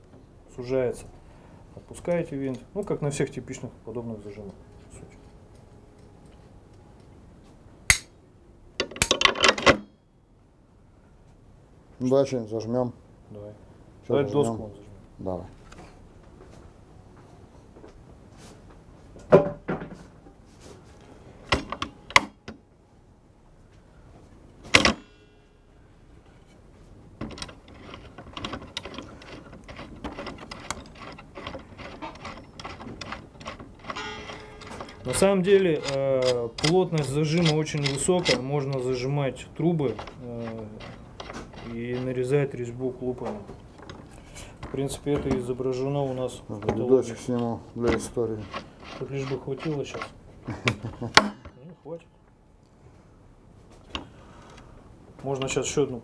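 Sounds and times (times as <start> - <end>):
sharp clamp click: 7.9 - 8.1
clamp clicking and rattling: 27.2 - 42.4, 46.6 - 51.6.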